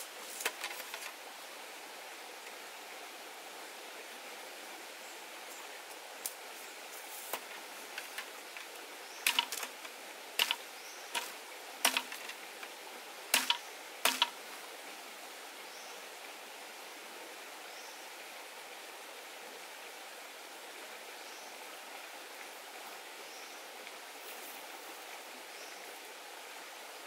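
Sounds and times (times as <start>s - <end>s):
stream rushing: 0.0s - 27.0s
bamboo cracking under a blade: 9.3s - 10.6s, 11.2s - 12.4s, 13.4s - 14.4s.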